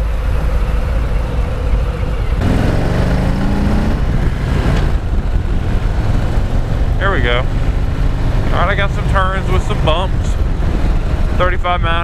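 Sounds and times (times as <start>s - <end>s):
motorcycle engine running: 0.0s - 12.0s
wind rush on microphone: 3.6s - 12.0s.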